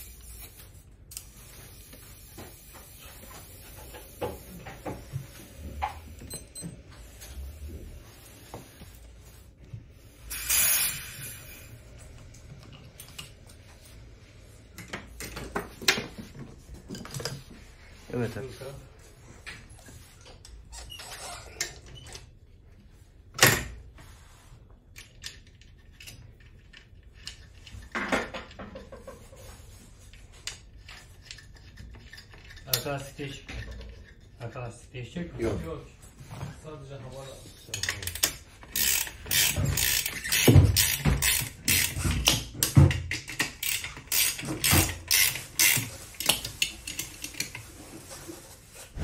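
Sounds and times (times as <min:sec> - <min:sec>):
ratchet-like clicks and rubbing: 0:10.3 - 0:11.7, 0:38.0 - 0:42.4, 0:43.2 - 0:47.6
wrench and metal parts clinking: 0:37.7 - 0:47.6.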